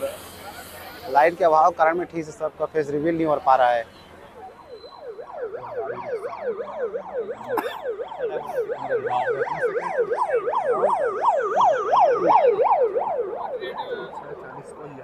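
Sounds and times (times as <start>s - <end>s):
police siren yelping: 4.3s - 14.2s.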